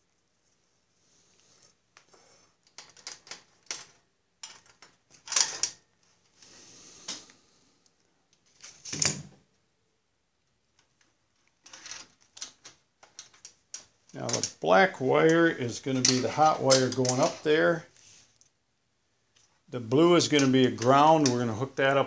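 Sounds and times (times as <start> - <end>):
electrical tape crackling: 11.0 - 18.5.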